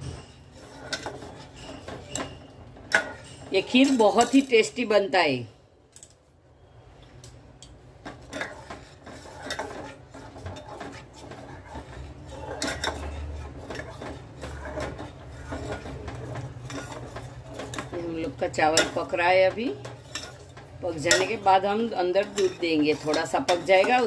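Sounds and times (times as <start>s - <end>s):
metal ladle scraping saucepan: 0.0s - 5.0s, 7.9s - 24.0s.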